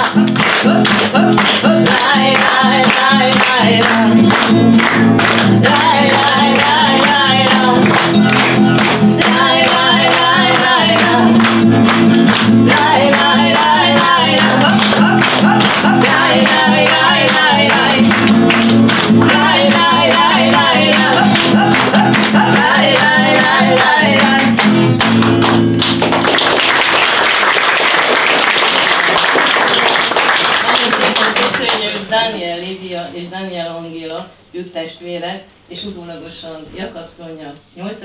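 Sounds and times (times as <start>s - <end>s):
low rhythmic accompaniment: 0.0s - 26.4s
applause: 0.0s - 32.1s
person singing wordless syllables: 19.2s - 24.6s.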